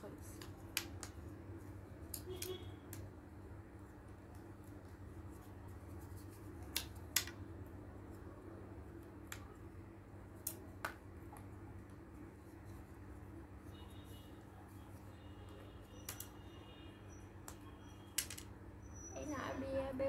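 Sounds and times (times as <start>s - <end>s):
cardboard pieces clicking and snapping: 6.6s - 7.4s.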